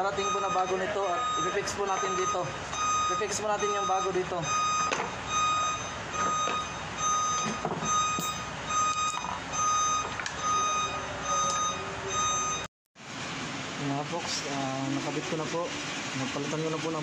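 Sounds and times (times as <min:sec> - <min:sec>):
reversing alarm beeping: 0:00.0 - 0:12.7.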